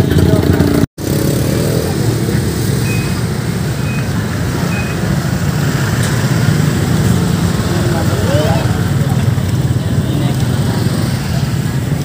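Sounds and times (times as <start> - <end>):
short high beeps: 2.7 - 3.2, 3.8 - 5.2.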